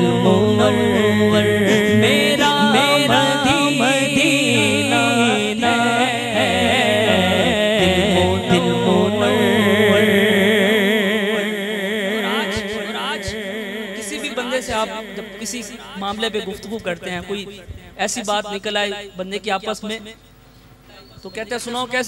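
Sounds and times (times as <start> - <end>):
man singing into a microphone: 0.0 - 16.7
low drone: 0.0 - 16.8.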